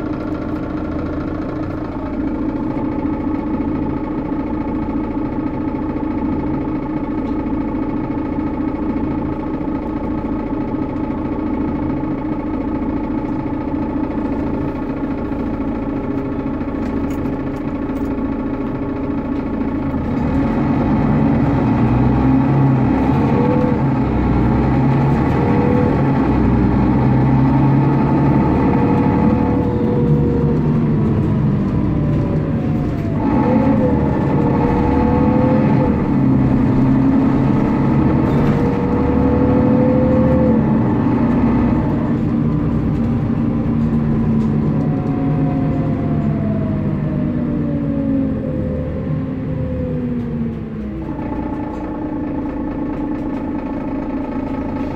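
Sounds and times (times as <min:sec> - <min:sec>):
diesel bus engine idling: 0:00.0 - 0:54.9
engine whines under load: 0:00.0 - 0:54.9.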